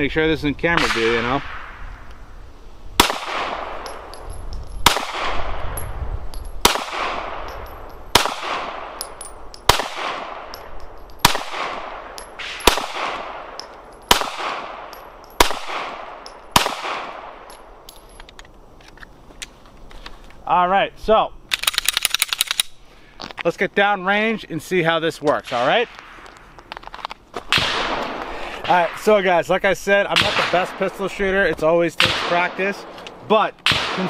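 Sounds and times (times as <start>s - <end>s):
pistol shots with echo: 3.0s - 4.2s, 4.8s - 5.9s, 6.6s - 17.6s, 27.5s - 28.9s, 30.1s - 31.1s, 32.0s - 33.0s, 33.6s - 34.0s.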